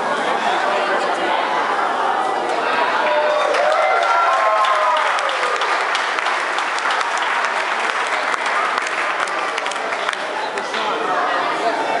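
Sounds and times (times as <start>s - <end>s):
crowd applauding: 3.0s - 10.9s.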